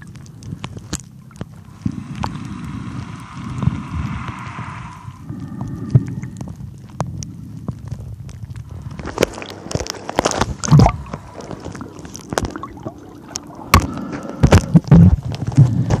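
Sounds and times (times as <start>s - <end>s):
muffled underwater sloshing: 0.0s - 16.0s
water splashes: 0.0s - 16.0s.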